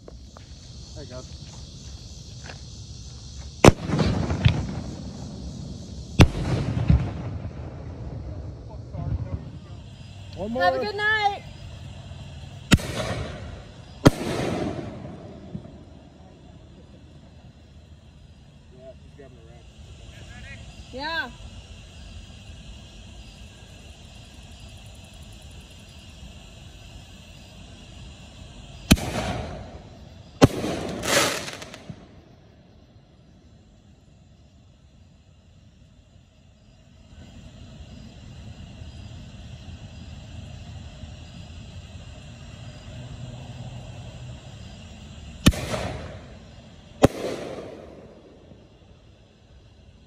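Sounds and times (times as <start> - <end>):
firework crackle: 0.0 - 50.0
firework bangs: 3.4 - 32.7, 43.9 - 50.0.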